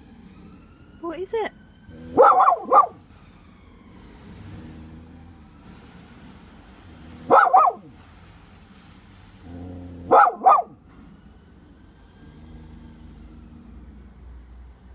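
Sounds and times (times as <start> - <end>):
dog growling: 1.8 - 3.0, 9.4 - 10.5, 12.2 - 14.0
dog barking: 2.1 - 3.0, 7.2 - 7.9, 10.0 - 10.8.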